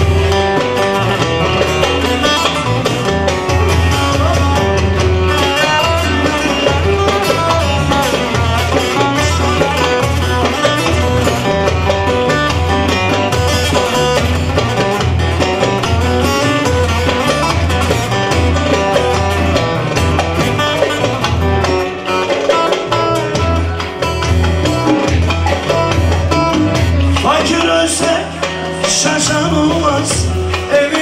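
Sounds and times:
goblet drum: 0.0s - 31.0s
plucked long-necked lute melody: 0.0s - 31.0s
low keyboard bass beat: 22.8s - 28.3s.

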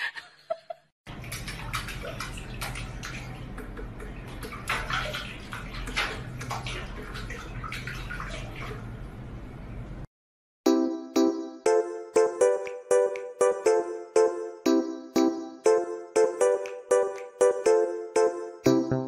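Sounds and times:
water splashing in metal sink: 1.1s - 9.2s.

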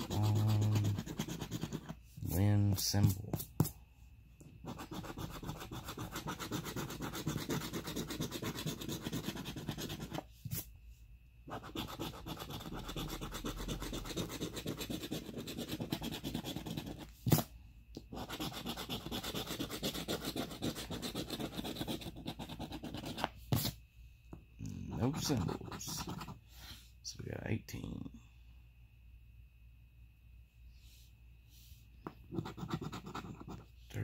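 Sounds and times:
coin scraping scratch card: 0.0s - 3.5s, 4.6s - 10.7s, 11.5s - 17.4s, 18.1s - 23.8s, 25.0s - 26.4s, 32.3s - 33.6s.

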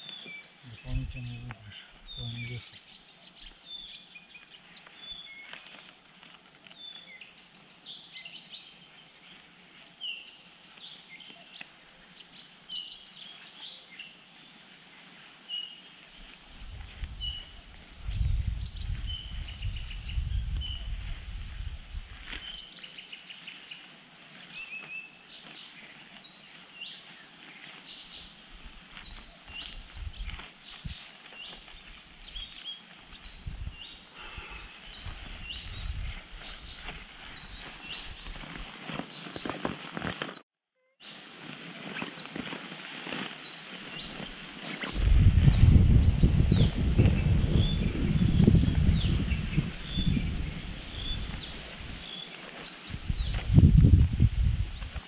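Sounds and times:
songbirds chirping and whistling: 0.0s - 40.4s, 41.0s - 55.0s
faint outdoor background: 0.0s - 55.0s
low rumble: 45.0s - 50.9s.

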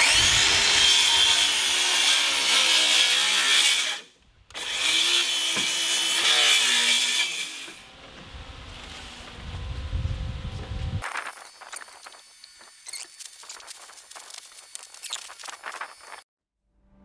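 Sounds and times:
power saw cutting wood: 0.0s - 8.0s.

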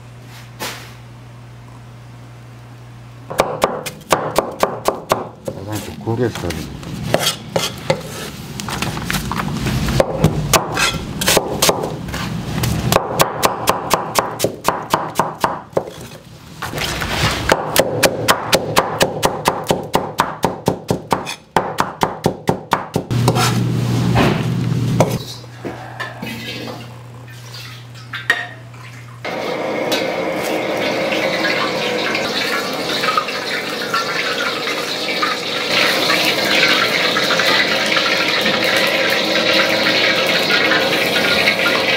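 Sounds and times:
knife chopping on cutting board: 3.3s - 5.9s, 7.1s - 8.3s, 10.0s - 12.0s, 12.9s - 16.1s, 17.5s - 23.6s
gas burner rushing: 29.2s - 41.9s.

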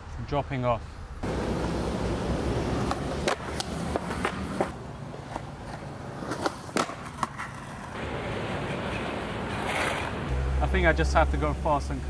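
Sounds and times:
skateboard wheels rolling on concrete: 1.2s - 10.8s
skateboard clacks and knocks: 2.7s - 10.2s.

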